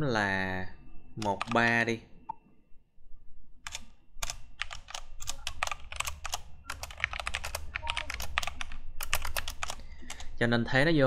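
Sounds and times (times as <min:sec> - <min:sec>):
keyboard typing: 0:01.2 - 0:01.8, 0:03.6 - 0:10.4.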